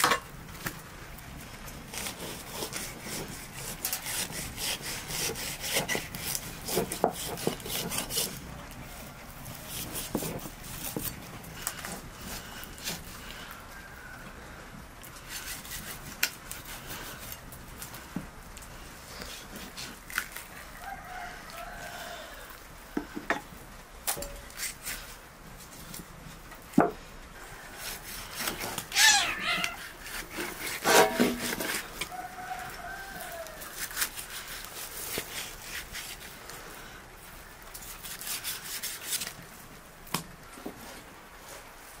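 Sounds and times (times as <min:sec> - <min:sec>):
knife cutting meat on board: 0:02.0 - 0:08.4
rooster crowing: 0:13.6 - 0:14.6, 0:20.5 - 0:22.6, 0:32.0 - 0:33.8.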